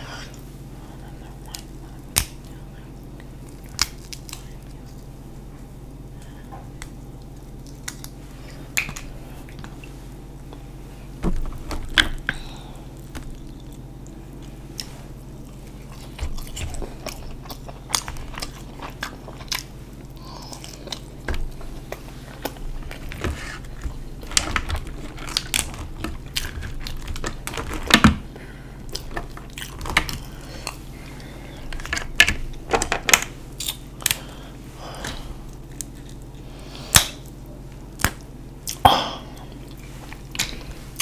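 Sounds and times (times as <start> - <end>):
chewing: 0.1 - 10.7, 11.5 - 27.8, 28.8 - 32.6, 33.5 - 41.0
shellfish shells cracking: 1.4 - 5.1, 6.7 - 9.8, 15.6 - 28.2, 28.9 - 34.4.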